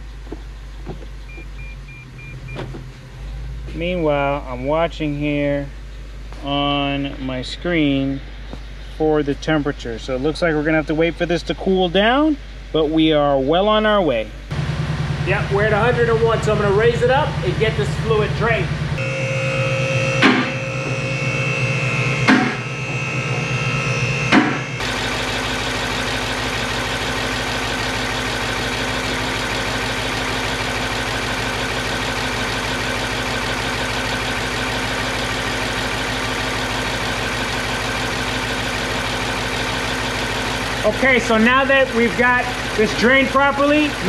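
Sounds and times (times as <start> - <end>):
car engine idling: 0.0 - 44.0
car lift motor running: 14.5 - 44.0.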